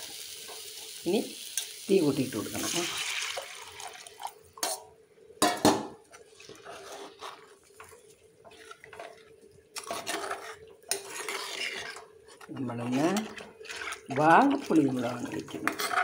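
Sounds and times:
utensils scraping: 9.8 - 14.5.

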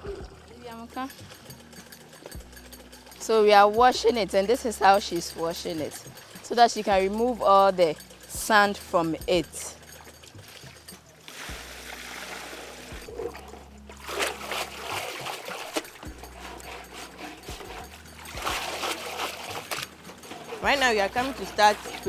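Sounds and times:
water pouring: 0.0 - 22.0
water splashing and draining: 0.0 - 22.0.

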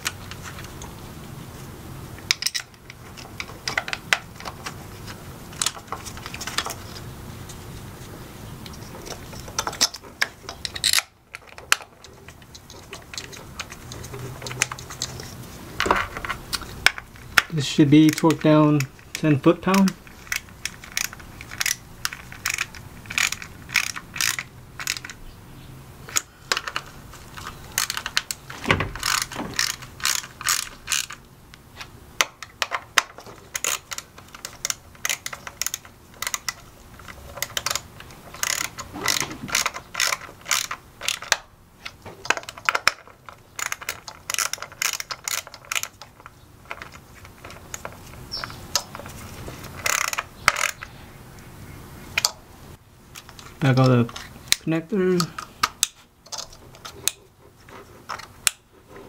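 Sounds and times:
socket ratchet clicking: 16.6 - 25.2, 26.1 - 31.2, 32.2 - 41.4, 43.6 - 46.1.

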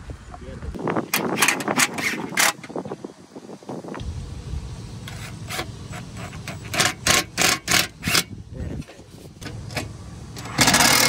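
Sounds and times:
low steady rumble: 3.9 - 10.9
impact driver driving screws: 5.5 - 8.3, 10.4 - 11.0.

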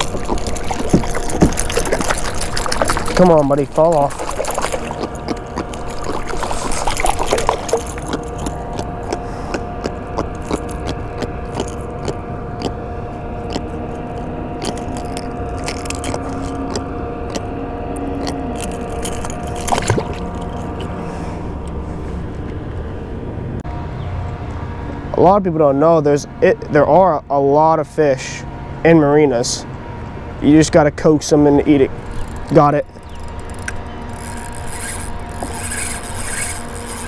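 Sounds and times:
fishing tackle clicking and rattling: 0.0 - 8.8, 13.5 - 17.4, 18.0 - 20.9, 32.0 - 37.0
steady mechanical hum: 0.0 - 37.0.

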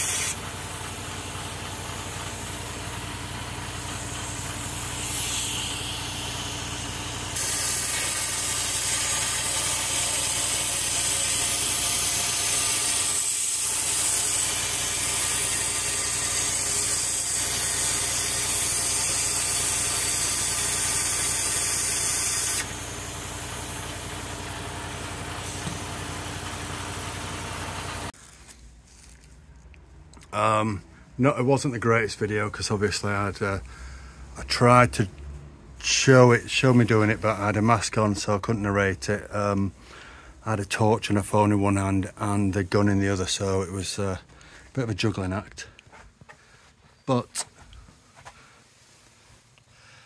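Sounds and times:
spray gun hissing: 0.0 - 28.2.

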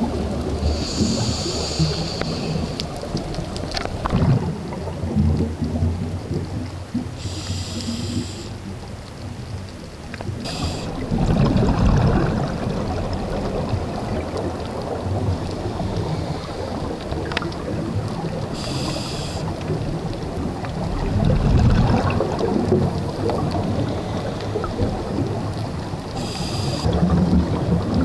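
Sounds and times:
exhaled bubbles rumbling: 0.0 - 28.0
regulator inhalation hiss: 0.6 - 2.9, 7.2 - 8.7, 10.4 - 11.0, 18.5 - 19.6, 26.2 - 26.9.

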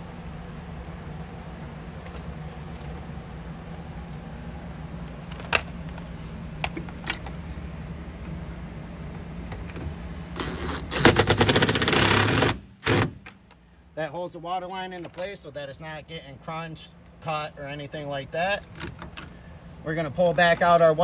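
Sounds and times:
power drill driving screw: 10.4 - 13.2.

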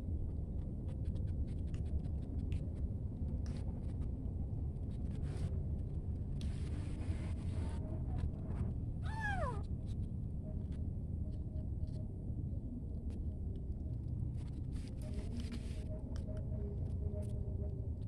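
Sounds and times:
kitten meowing: 9.0 - 9.7
kitten hissing: 9.1 - 9.6.

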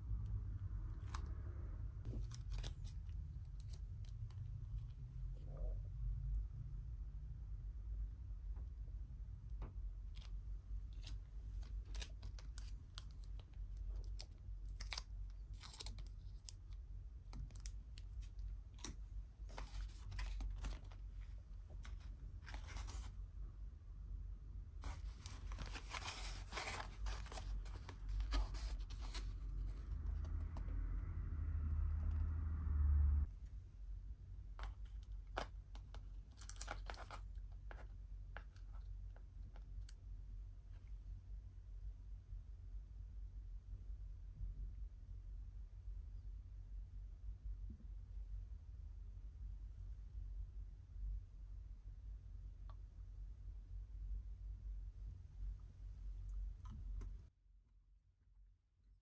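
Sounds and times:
low hum with crackle: 0.0 - 59.0
plastic packaging crinkling and tearing: 10.9 - 16.7, 19.5 - 21.1, 24.8 - 30.3, 34.6 - 37.8.

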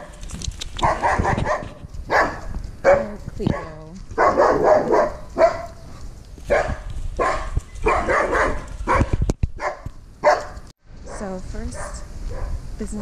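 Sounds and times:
camera handling rumble: 0.2 - 2.8
dog barking: 0.8 - 5.8, 6.5 - 12.6.

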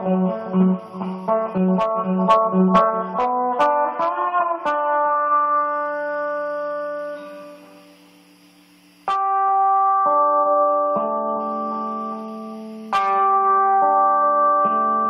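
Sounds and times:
plucked guitar notes: 0.0 - 6.0, 9.1 - 12.2, 12.9 - 15.0
guitar chords ringing: 0.0 - 15.0.

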